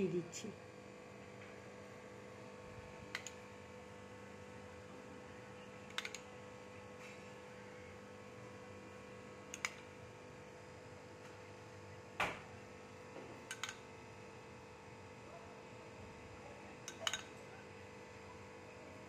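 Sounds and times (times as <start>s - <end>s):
spoon clicking on bowl: 16.9s - 17.3s.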